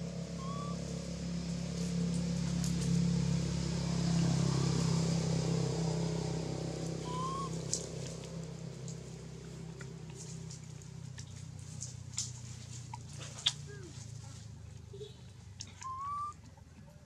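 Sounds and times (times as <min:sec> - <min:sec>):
vehicle engine humming: 0:00.0 - 0:17.0
brief rising chirp: 0:00.4 - 0:00.8, 0:07.0 - 0:07.6.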